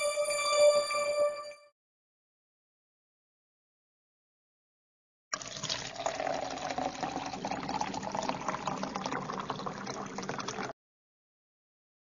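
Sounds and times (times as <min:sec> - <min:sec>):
running water splashing: 0:05.4 - 0:10.7.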